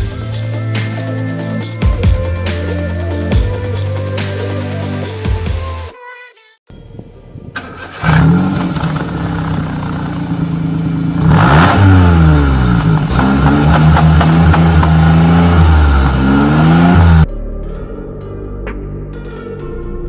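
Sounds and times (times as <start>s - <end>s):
car engine idling and revving: 6.8s - 17.3s.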